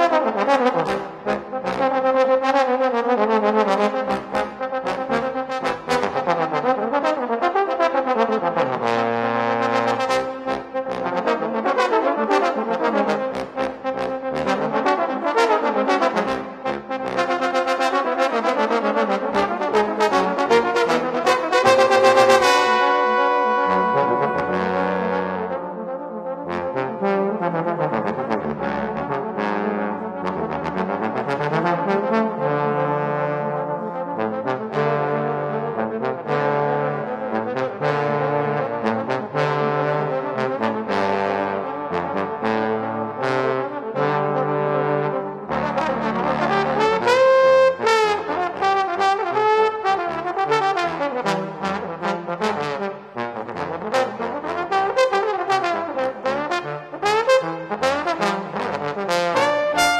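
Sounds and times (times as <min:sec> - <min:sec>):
gliding trombone slide notes: 0:00.0 - 0:59.9
trombone quartet playing: 0:00.0 - 0:59.9
high held trombone note: 0:21.5 - 0:25.7.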